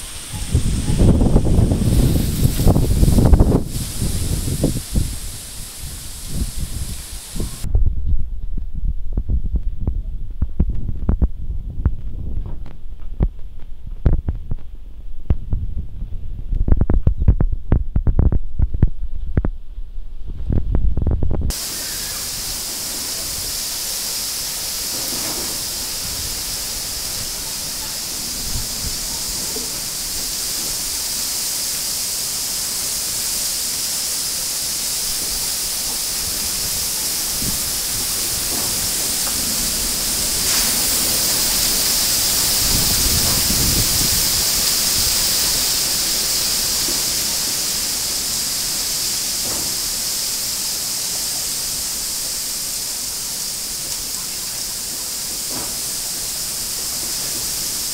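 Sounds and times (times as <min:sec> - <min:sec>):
wind buffeting microphone: 0:00.0 - 0:31.7, 0:34.7 - 0:48.0
strong wind rushing through trees: 0:00.0 - 0:57.9.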